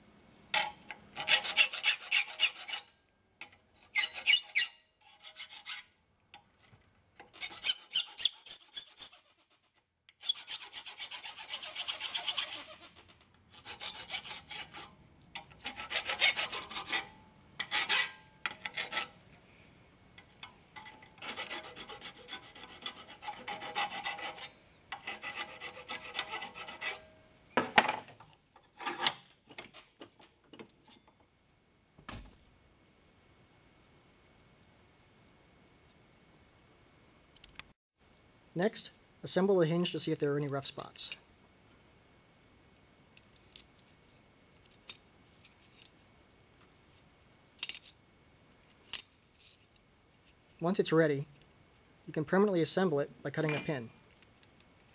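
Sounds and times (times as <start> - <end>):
file scraping on brass hinge: 0.6 - 2.9, 3.8 - 5.9, 7.2 - 19.2, 20.8 - 27.1.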